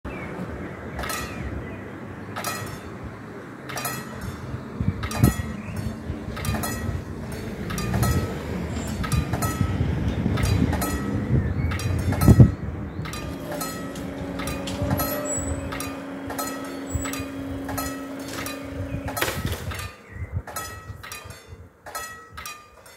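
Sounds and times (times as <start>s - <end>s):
level crossing warning bell: 2.4s - 19.2s.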